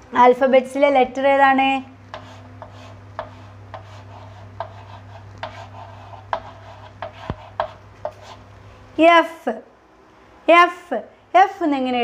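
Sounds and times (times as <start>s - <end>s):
steady low hum: 0.0s - 11.9s
chalk tapping and scratching: 2.1s - 8.5s.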